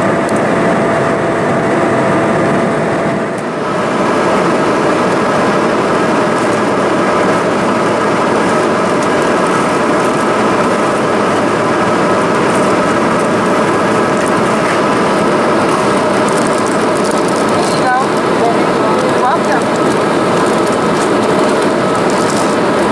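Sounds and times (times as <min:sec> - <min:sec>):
jet engines humming: 0:00.0 - 0:22.9.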